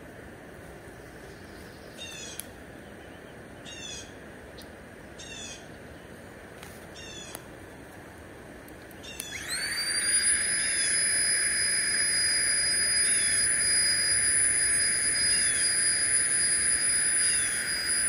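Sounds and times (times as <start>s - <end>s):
songbird singing: 0.9s - 6.3s, 6.9s - 7.5s, 8.8s - 9.7s, 12.6s - 18.0s
faint sharp clicks: 2.1s - 2.6s, 6.6s - 7.5s.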